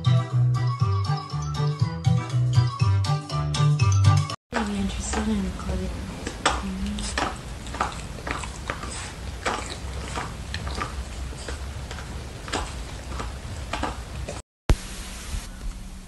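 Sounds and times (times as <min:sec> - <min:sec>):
puppy licking lips: 0:05.1 - 0:14.4.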